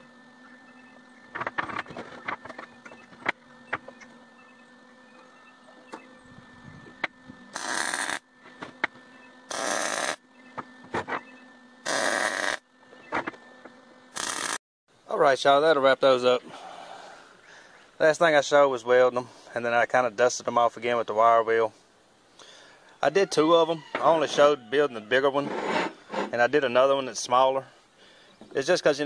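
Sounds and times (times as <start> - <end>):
arc welder crackling: 6.9 - 13.4, 14.1 - 14.6.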